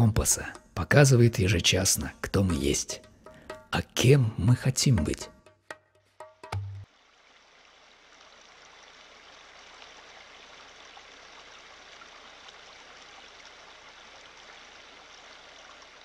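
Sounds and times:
stream running over rocks: 0:06.8 - 0:16.0.

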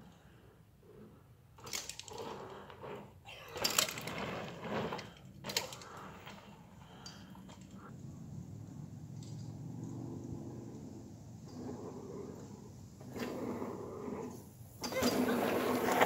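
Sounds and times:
bike rattling: 0:03.6 - 0:11.7.

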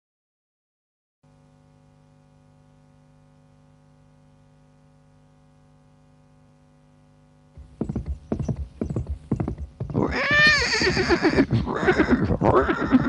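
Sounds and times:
faint hum: 0:01.2 - 0:13.0
horse hooves galloping: 0:07.6 - 0:13.0
horse neighing: 0:08.3 - 0:13.0.

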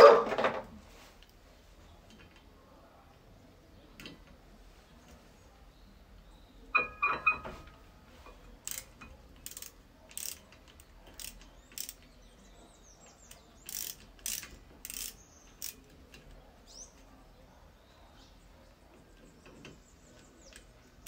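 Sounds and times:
metallic ratchet clicking: 0:08.6 - 0:12.1, 0:13.6 - 0:15.9.

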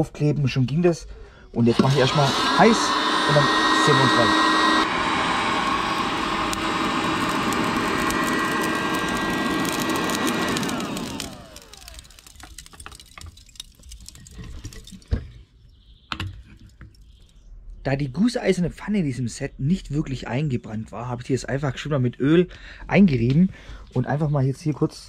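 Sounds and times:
fan winding down whine: 0:01.6 - 0:12.5
hot-air lighter blowing: 0:01.7 - 0:12.4.

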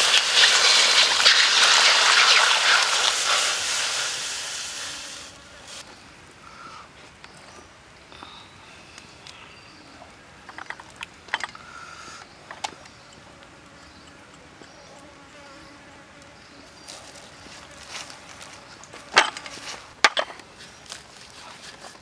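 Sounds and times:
insects buzzing and chirping: 0:00.0 - 0:22.0.

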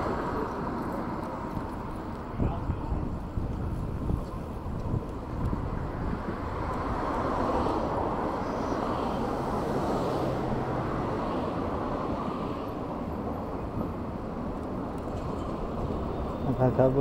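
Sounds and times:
bicycle tyre and road noise: 0:00.0 - 0:17.0
wind on microphone: 0:01.4 - 0:12.3.

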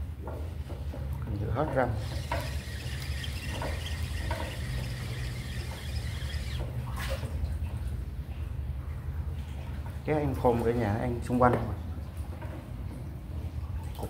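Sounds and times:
steady low hum: 0:02.0 - 0:08.8.

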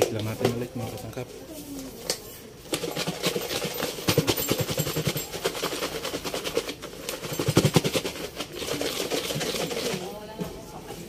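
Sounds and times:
food rattling in plastic tub: 0:02.7 - 0:10.3.

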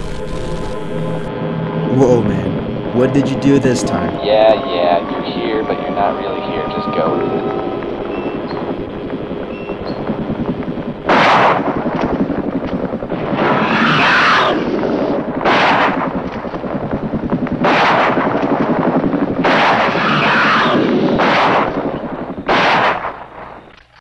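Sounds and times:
steady background noise: 0:00.0 - 0:24.0
gunshots: 0:11.0 - 0:23.7.

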